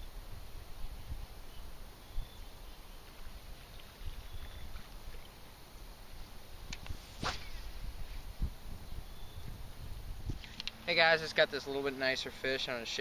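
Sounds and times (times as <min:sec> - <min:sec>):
wind rumbling on microphone: 0:00.0 - 0:10.7
faint high chirps: 0:04.0 - 0:04.9
short swish: 0:06.9 - 0:08.1.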